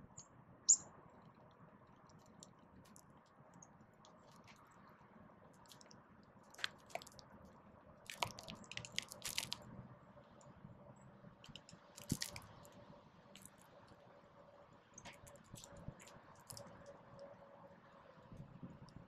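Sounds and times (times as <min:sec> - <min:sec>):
birds pecking and cracking seed: 0:00.0 - 0:04.9, 0:05.5 - 0:09.7, 0:11.4 - 0:14.0, 0:15.0 - 0:17.3.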